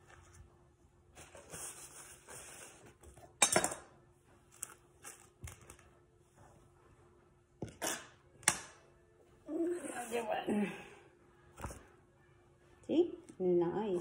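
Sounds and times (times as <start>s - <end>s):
knife scraping stone countertop: 7.7s - 8.2s.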